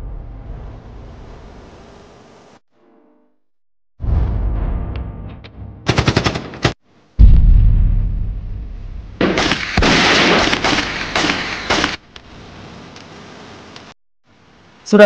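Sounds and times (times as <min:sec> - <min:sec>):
machine-gun fire: 0:05.8 - 0:07.5, 0:09.2 - 0:12.0
loud boom with rumble: 0:07.2 - 0:10.4.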